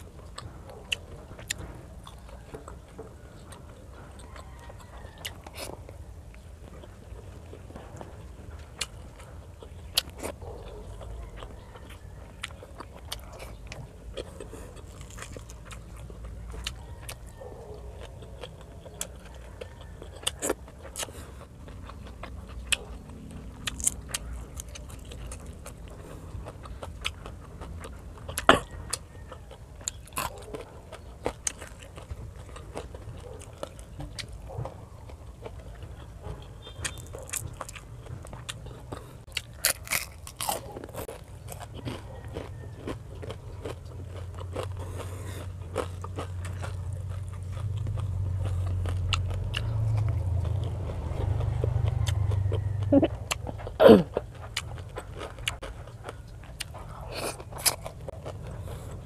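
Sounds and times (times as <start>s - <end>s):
crunchy chewing: 0.0s - 59.0s
low hum: 43.0s - 59.0s.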